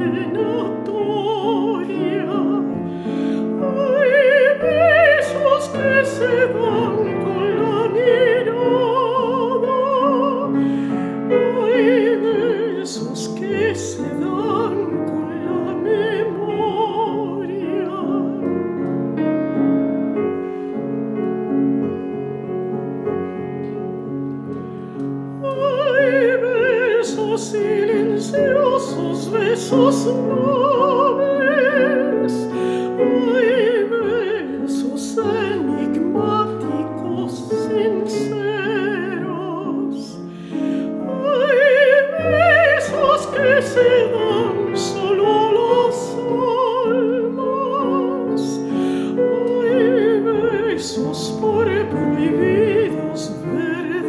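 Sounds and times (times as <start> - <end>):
woman singing with vibrato: 0.0 - 18.9, 25.3 - 54.0
piano accompaniment: 0.0 - 54.0.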